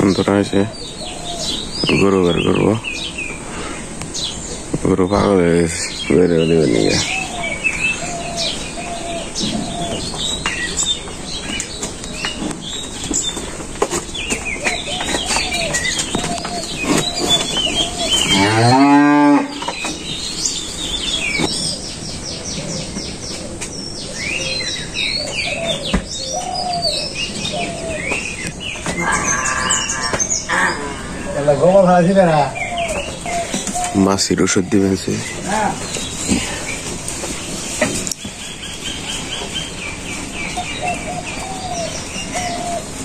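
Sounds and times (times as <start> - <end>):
small birds chirping: 0.0 - 43.0
cow mooing: 18.3 - 19.6.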